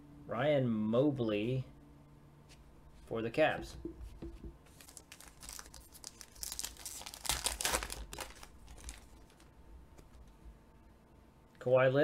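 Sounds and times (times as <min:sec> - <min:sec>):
foil wrapper tearing and crinkling: 0:04.7 - 0:09.5.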